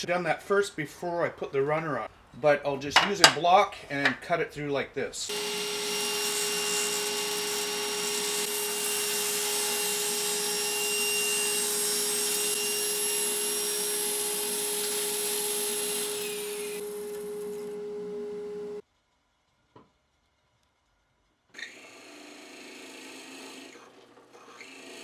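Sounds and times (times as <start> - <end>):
table saw cutting wood: 5.3 - 18.8, 21.6 - 25.0.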